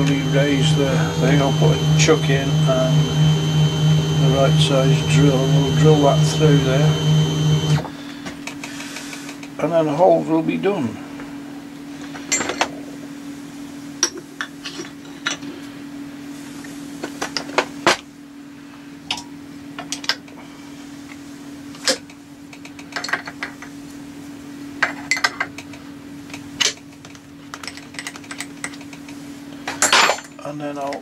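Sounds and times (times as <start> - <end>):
steady machine hum: 0.0 - 14.0.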